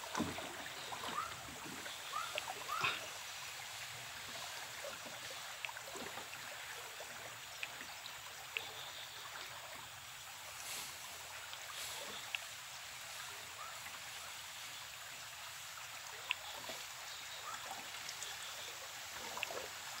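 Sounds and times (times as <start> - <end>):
river water flowing and lapping: 0.0 - 20.0.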